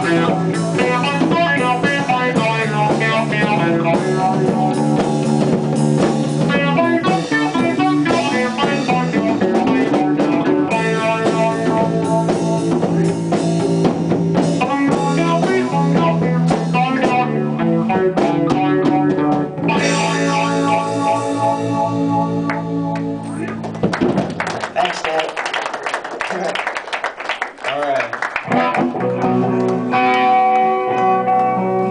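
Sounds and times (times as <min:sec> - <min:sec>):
band playing electric guitars: 0:00.0 - 0:24.7, 0:28.1 - 0:31.9.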